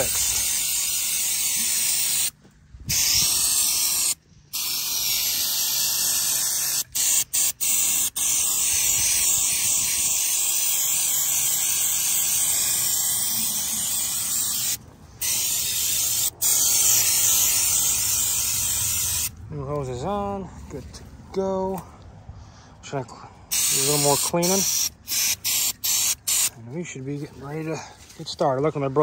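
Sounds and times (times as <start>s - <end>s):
aerosol can spraying: 0.0s - 19.3s, 23.5s - 26.5s.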